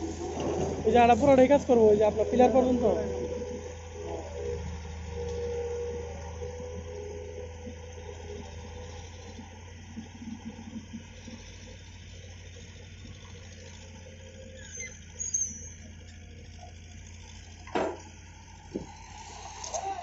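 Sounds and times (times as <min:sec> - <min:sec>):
excavator engine humming: 0:00.0 - 0:20.0
high squeak: 0:14.5 - 0:15.9.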